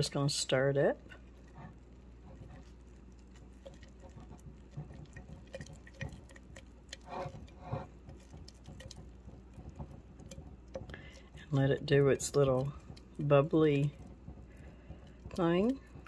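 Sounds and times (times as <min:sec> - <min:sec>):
stick scraping glass jar: 0:03.6 - 0:16.0.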